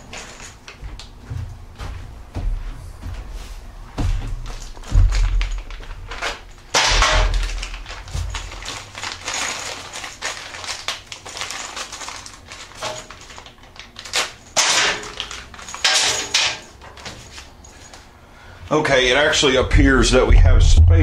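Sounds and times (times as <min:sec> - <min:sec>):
packaging rustling: 0:04.5 - 0:18.0.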